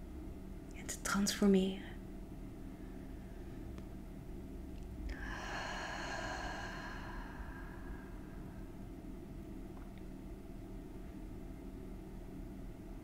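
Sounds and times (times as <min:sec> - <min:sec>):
faint room hum: 0:00.0 - 0:13.0
long breath: 0:05.1 - 0:08.8.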